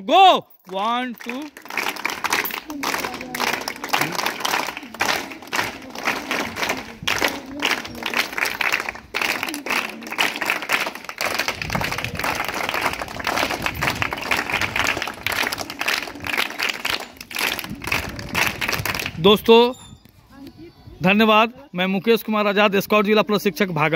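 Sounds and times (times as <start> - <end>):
children clapping rhythmically: 0.7 - 19.5.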